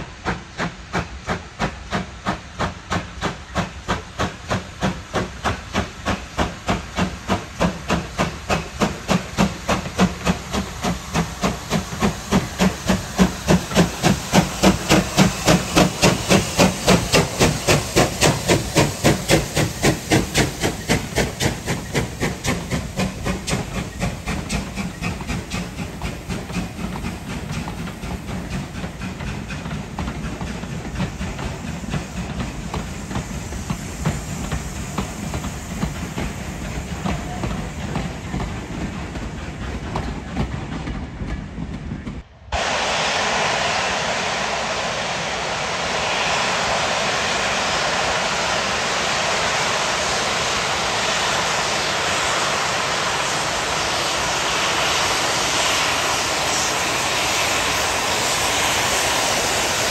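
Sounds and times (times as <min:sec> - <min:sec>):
steam train passing: 0:00.0 - 0:59.9
steady rushing noise: 0:42.0 - 0:59.9.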